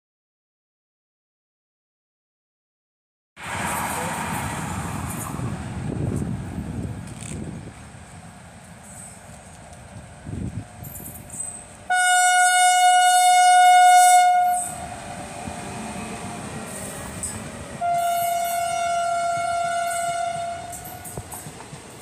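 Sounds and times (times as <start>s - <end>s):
train running past: 3.4s - 22.0s
train horn blast: 11.9s - 14.9s, 17.2s - 21.2s.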